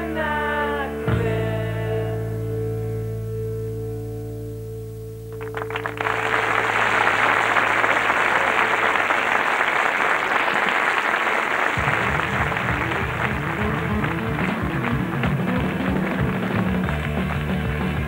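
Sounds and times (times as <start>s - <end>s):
audience applause: 5.4s - 18.0s
low rhythmic beat: 11.8s - 18.0s.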